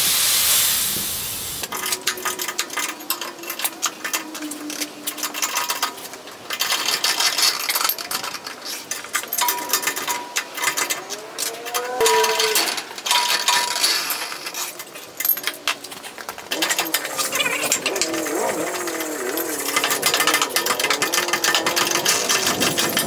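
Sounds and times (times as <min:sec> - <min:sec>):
wavering squeaks: 0:01.8 - 0:06.2, 0:08.7 - 0:13.0, 0:16.6 - 0:23.0.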